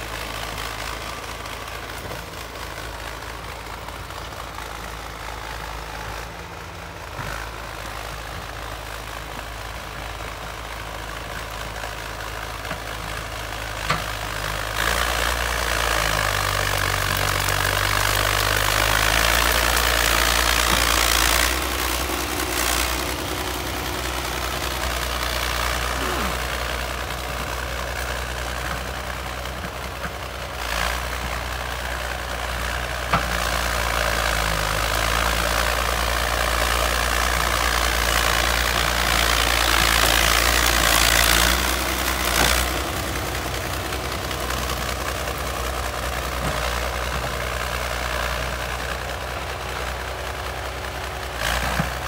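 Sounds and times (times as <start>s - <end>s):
bulldozer diesel engine: 0.0s - 52.0s
blade pushing soil: 13.0s - 48.8s.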